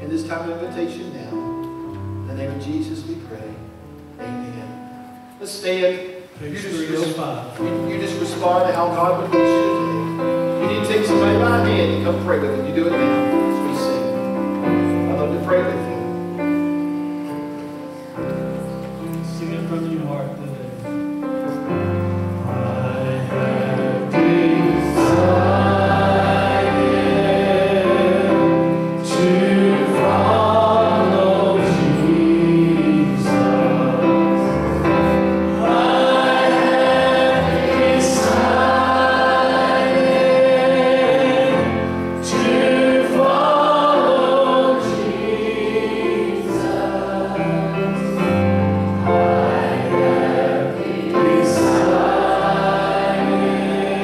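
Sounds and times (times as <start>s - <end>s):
congregation singing a hymn: 5.5s - 54.0s
electronic keyboard: 7.2s - 54.0s
man leading singing: 22.6s - 34.4s.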